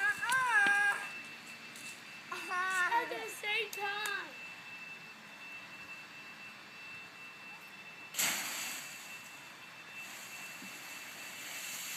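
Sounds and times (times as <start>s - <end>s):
crunch and rustle of leaves: 10.0s - 11.9s.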